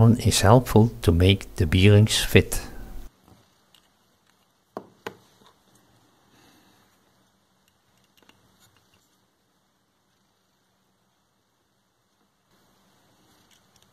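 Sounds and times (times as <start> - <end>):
soft rustle: 3.0 - 11.3, 11.9 - 13.9
small parts clicking and tapping: 3.6 - 5.6, 7.6 - 9.1, 13.4 - 13.9.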